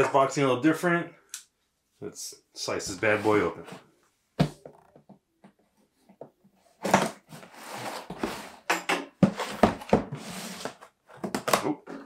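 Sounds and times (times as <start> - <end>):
cardboard box scraping on table: 6.8 - 8.6, 9.3 - 11.0.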